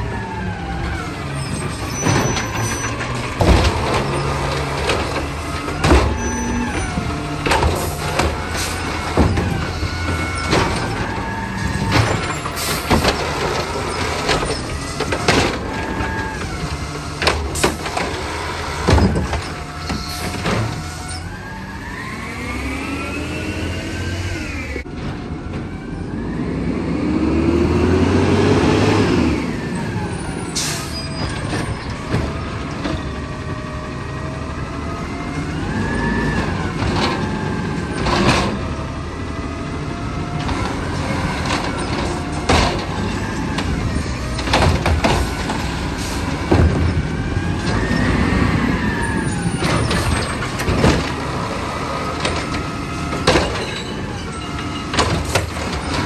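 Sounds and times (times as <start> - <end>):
garbage truck engine revving: 0.0 - 56.0
metal clanks from arm and carts: 0.8 - 21.6, 29.2 - 33.6, 35.4 - 39.0, 40.2 - 56.0.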